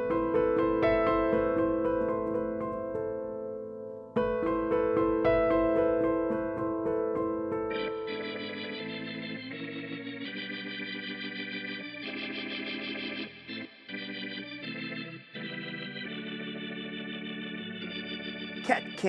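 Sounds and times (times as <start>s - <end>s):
organ-like keyboard chords: 4.2s - 19.0s.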